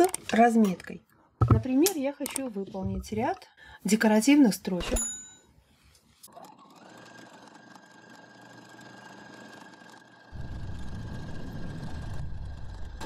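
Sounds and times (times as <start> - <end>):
sewing machine stitching: 6.3 - 10.3
sewing machine motor humming: 6.3 - 10.4.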